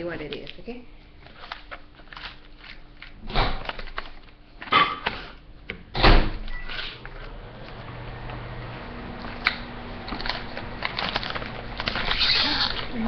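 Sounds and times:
food pouch crinkling: 1.2s - 4.4s, 10.1s - 13.0s.

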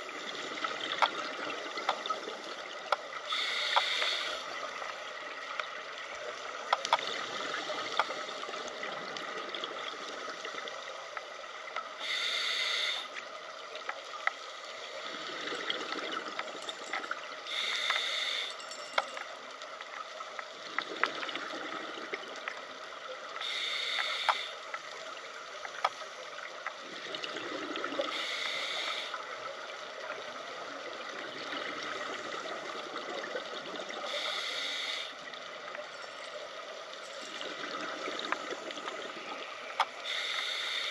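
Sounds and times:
steady watery hiss: 0.0s - 40.9s
faint clicks: 2.8s - 4.5s, 6.6s - 7.2s, 7.8s - 9.3s, 13.2s - 14.7s, 23.4s - 24.9s, 25.5s - 26.8s, 39.7s - 40.9s
exhaled bubbles underwater: 26.8s - 28.2s.

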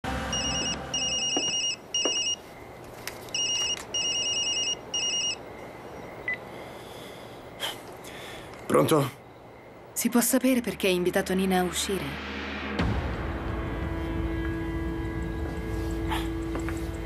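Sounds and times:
phone ringtone trilling: 0.3s - 2.4s, 3.3s - 5.4s.

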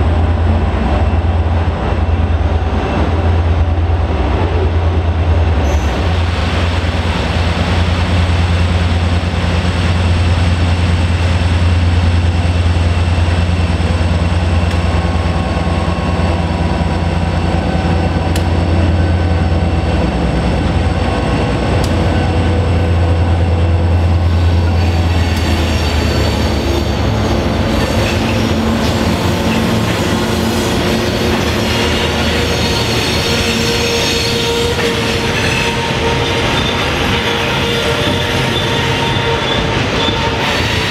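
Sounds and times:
diesel locomotives droning: 0.0s - 40.9s
wheels squealing on rails: 5.6s - 6.7s, 23.9s - 40.9s.

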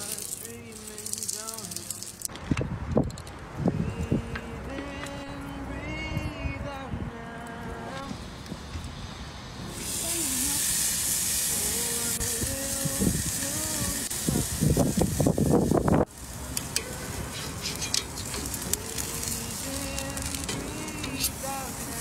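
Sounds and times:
song with singing voice: 0.0s - 2.3s, 3.7s - 8.2s, 9.8s - 15.0s, 18.4s - 22.0s
steak sizzling on a grill: 0.0s - 2.3s, 9.6s - 22.0s
metal tongs clicking: 17.6s - 18.8s.

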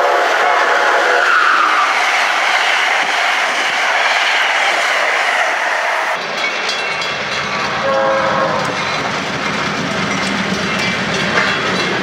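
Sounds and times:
train wheels rushing on rail: 0.0s - 12.0s
high screech: 0.4s - 6.2s
train horn: 7.8s - 8.8s.

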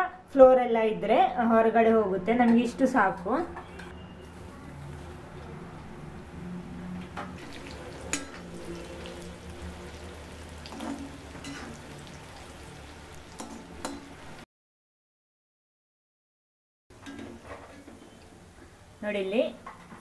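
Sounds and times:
pasta sizzling in hot oil: 7.4s - 14.4s.

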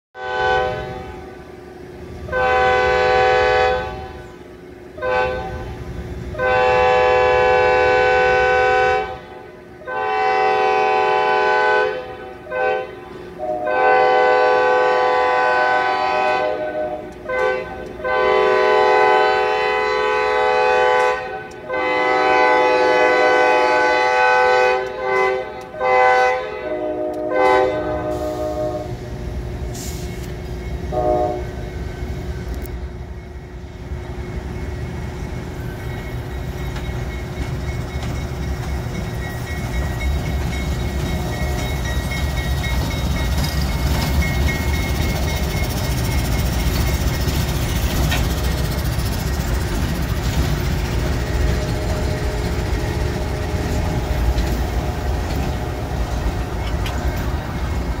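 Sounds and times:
locomotive air horn blasts: 0.2s - 29.2s, 29.8s - 31.9s
low train rumble: 0.2s - 58.0s.

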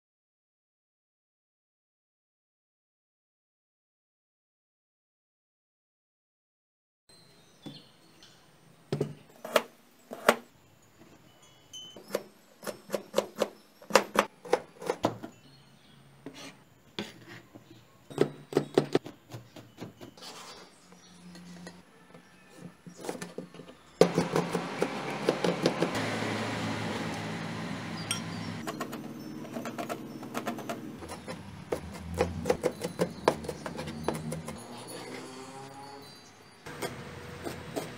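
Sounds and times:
knife chopping on plastic board: 24.0s - 26.0s, 29.5s - 34.5s.

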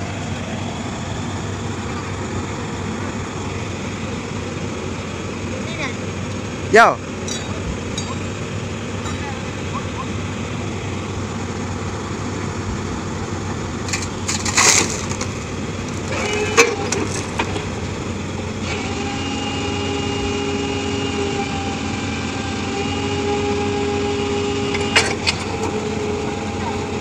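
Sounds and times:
excavator engine running: 0.0s - 27.0s
multi-pitched machine whine: 15.4s - 27.0s.

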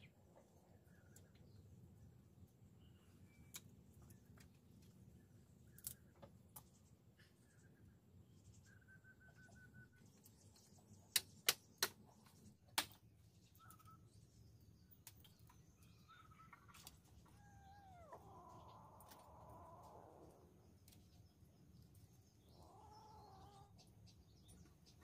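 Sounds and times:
cat mewing: 17.3s - 18.3s.

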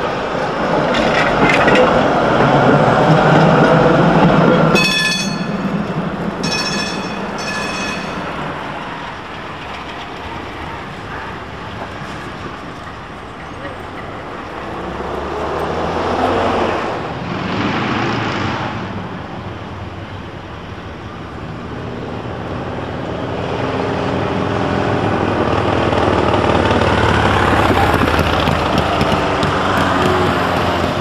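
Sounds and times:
tram running: 0.0s - 31.0s
vehicles passing: 0.0s - 31.0s.

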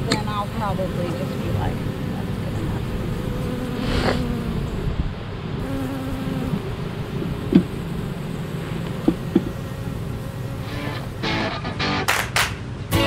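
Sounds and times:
honeybees buzzing: 0.0s - 11.6s.

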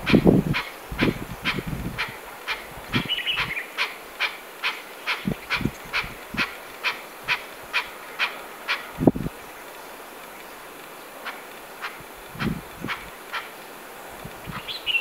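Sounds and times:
bird twittering: 0.1s - 8.9s, 14.4s - 15.0s
partridge calling: 0.1s - 9.8s, 11.2s - 13.6s, 14.4s - 15.0s.

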